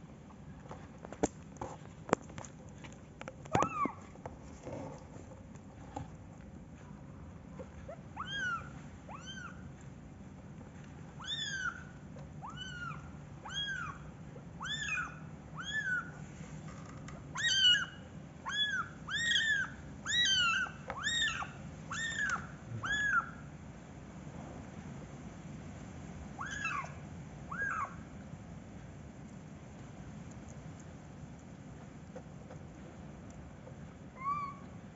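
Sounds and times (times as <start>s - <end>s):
kitten meowing: 8.2s - 9.6s, 11.2s - 14.0s, 14.6s - 16.2s, 17.3s - 23.4s, 26.4s - 28.0s, 34.2s - 34.7s.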